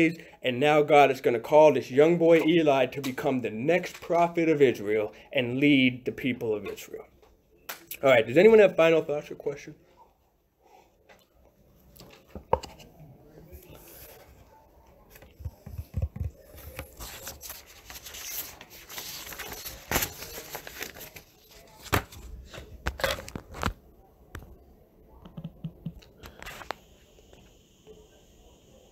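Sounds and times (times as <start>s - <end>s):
handling rustling and scraping: 11.9s - 23.7s.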